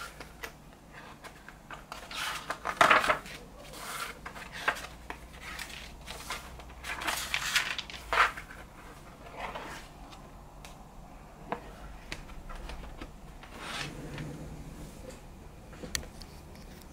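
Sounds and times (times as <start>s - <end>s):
book pages turning: 0.0s - 10.8s.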